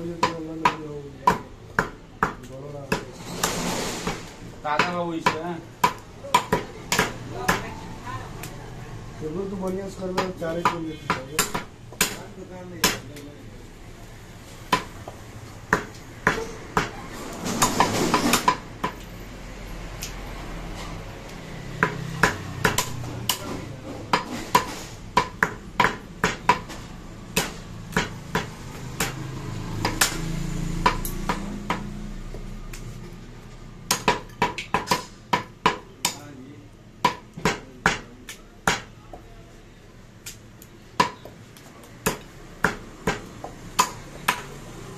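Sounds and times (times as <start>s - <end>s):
cleaver chopping meat on wood: 0.0s - 3.1s, 4.7s - 7.6s, 10.0s - 12.2s, 12.8s - 13.1s, 14.7s - 15.0s, 15.7s - 17.0s, 21.8s - 32.0s, 33.9s - 36.3s, 37.0s - 39.2s, 41.0s - 41.4s, 42.0s - 44.5s.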